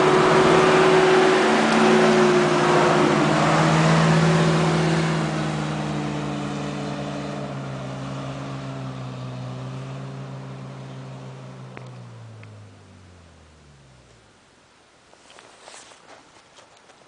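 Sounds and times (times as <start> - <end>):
tyres churning through mud: 0.0 - 12.1
off-road vehicle engine: 0.0 - 17.0.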